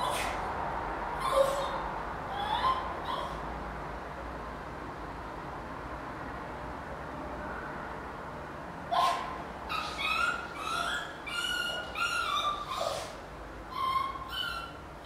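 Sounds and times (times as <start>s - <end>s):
small dog whining: 0.0s - 0.5s, 1.2s - 3.4s, 8.9s - 14.8s.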